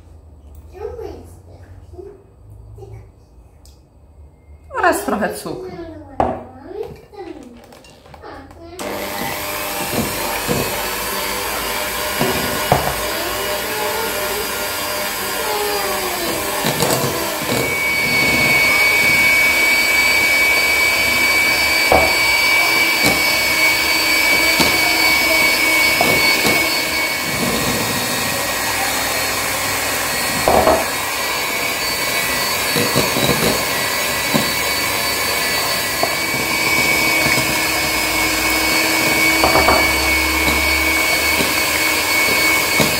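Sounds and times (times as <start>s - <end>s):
electric hand mixer running: 8.8s - 42.9s.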